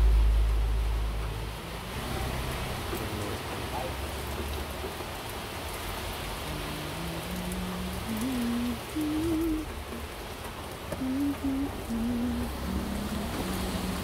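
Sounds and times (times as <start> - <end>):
heavy rain: 0.0 - 14.0
man humming: 6.4 - 9.7, 10.9 - 14.0.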